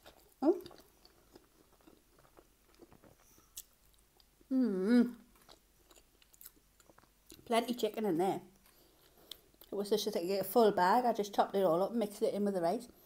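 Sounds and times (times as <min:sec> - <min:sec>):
person chewing food: 0:00.0 - 0:04.5, 0:05.2 - 0:07.5, 0:08.6 - 0:09.8
person humming mmm: 0:04.5 - 0:05.3.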